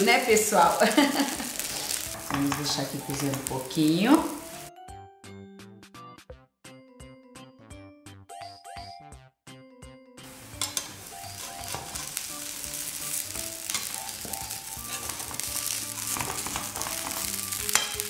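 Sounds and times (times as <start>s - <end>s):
batter sizzling in a pan: 0.0s - 4.7s, 10.3s - 18.0s.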